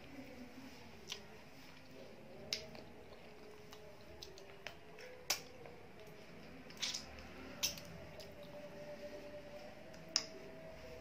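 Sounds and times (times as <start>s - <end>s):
eating clicks and smacks: 2.4s - 8.6s.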